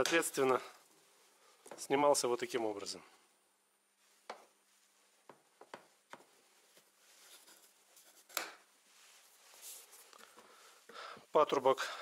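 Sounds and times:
soft rustling: 3.2s - 11.7s.

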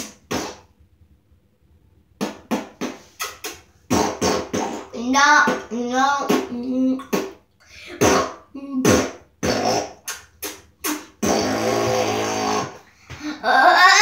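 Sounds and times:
mock fart noises: 0.0s - 0.7s, 2.2s - 7.4s, 8.0s - 12.8s.

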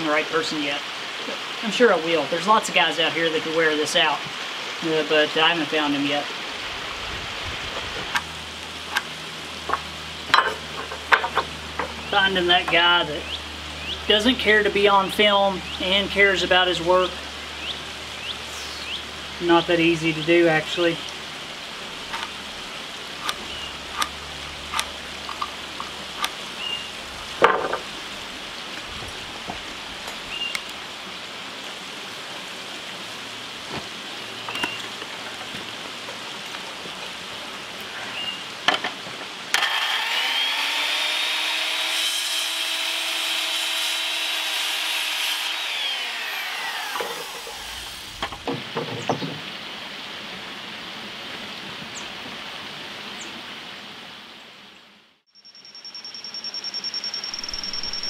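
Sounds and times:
lumber and tools clicking and knocking: 9.7s - 12.0s
circular saw cutting wood: 39.5s - 48.4s.

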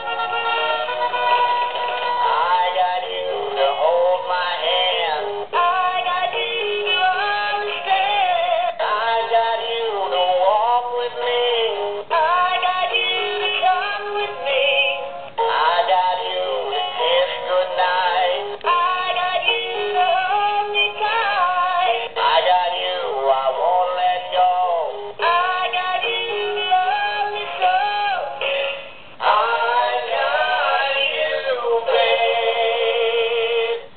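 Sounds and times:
electronic toy singing song: 0.0s - 33.8s.

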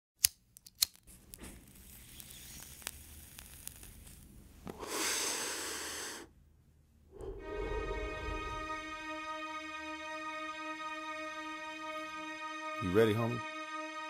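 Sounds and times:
crackling static: 1.0s - 4.7s
rush of hiss: 4.8s - 6.3s.

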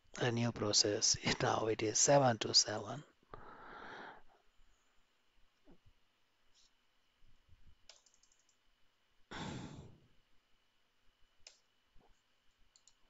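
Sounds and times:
computer keyboard clicks: 7.8s - 8.6s, 12.7s - 13.0s
person sighing into microphone: 9.3s - 10.0s.

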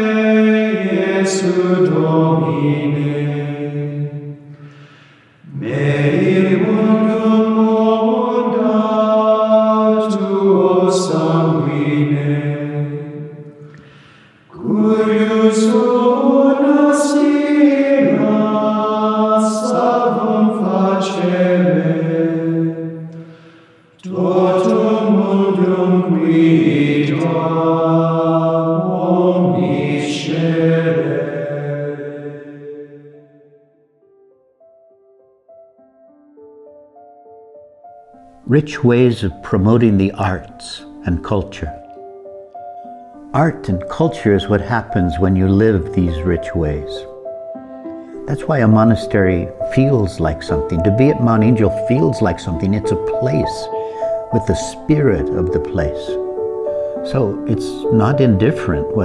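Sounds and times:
men's choir chanting: 0.0s - 4.3s, 5.4s - 13.5s, 14.5s - 23.2s, 24.0s - 33.4s.

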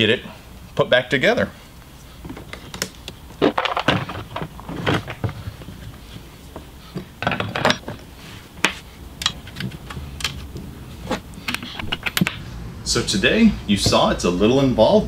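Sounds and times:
parts clicking and clattering: 2.2s - 12.4s.

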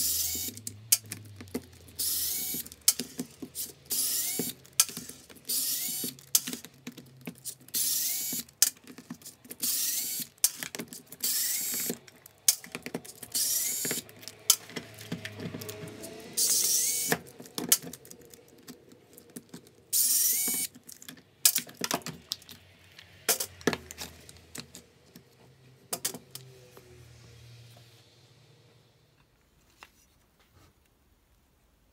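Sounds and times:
electric screwdriver whirring: 0.0s - 1.1s, 1.8s - 6.6s, 7.4s - 8.7s, 9.6s - 18.1s, 19.9s - 20.7s
screws and plastic parts clattering: 0.0s - 22.7s.

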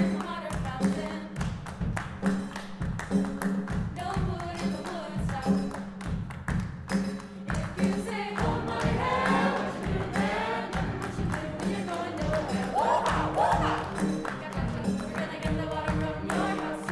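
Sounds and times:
hand claps and percussion: 0.0s - 16.9s
mixed choir singing: 7.6s - 16.9s.

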